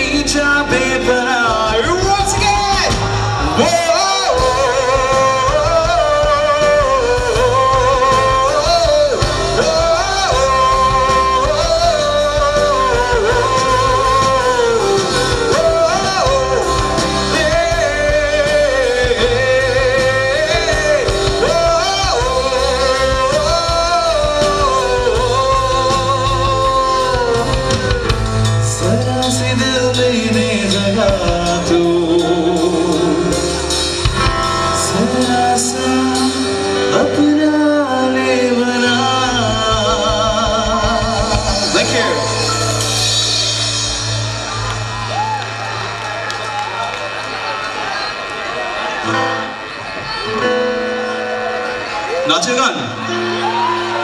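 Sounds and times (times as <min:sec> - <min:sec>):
electric bass: 0:00.0 - 0:37.0
person singing lead vocal: 0:00.0 - 0:45.6
acoustic guitar: 0:00.0 - 0:54.0
drums: 0:00.0 - 0:54.0
keyboard: 0:00.0 - 0:54.0.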